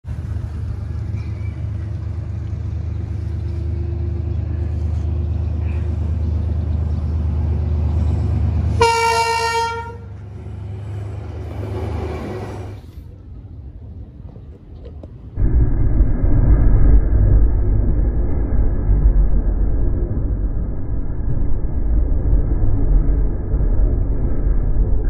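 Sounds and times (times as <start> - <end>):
locomotive rumble: 0.0 - 25.0
locomotive horn blast: 8.7 - 10.3.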